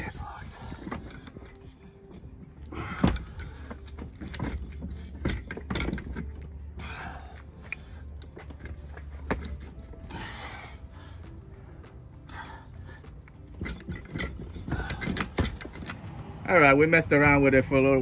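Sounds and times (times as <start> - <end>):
low steady hum: 0.0 - 18.0
metal knocks and clunks: 2.9 - 6.5, 13.4 - 16.2.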